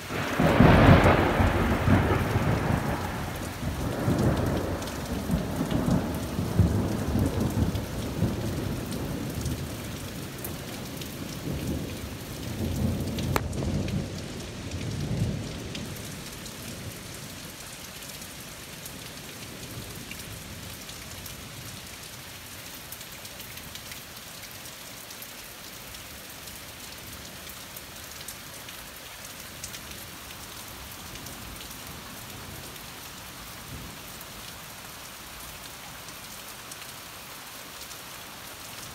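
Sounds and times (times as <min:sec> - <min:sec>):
steady rain falling: 0:00.0 - 0:38.9
rolling thunder rumble: 0:00.1 - 0:09.9, 0:10.6 - 0:16.0.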